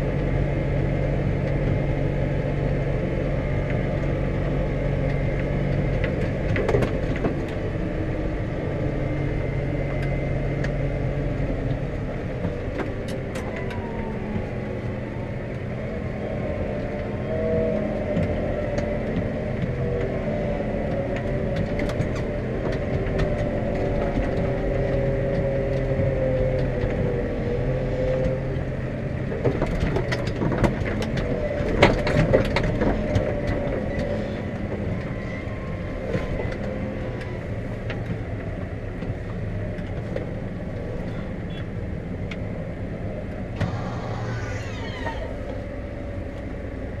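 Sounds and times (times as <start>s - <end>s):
wavering whine: 0.0s - 29.4s, 42.5s - 47.0s
tractor diesel engine running: 0.0s - 47.0s.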